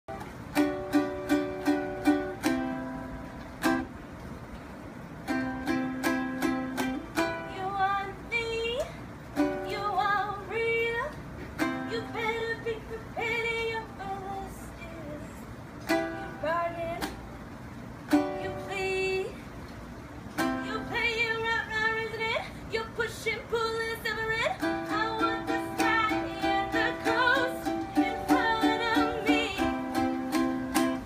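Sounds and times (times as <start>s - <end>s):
ukulele strumming chords: 0.1s - 19.4s, 20.2s - 31.0s
woman singing: 7.2s - 17.2s, 18.1s - 19.5s, 20.4s - 31.0s.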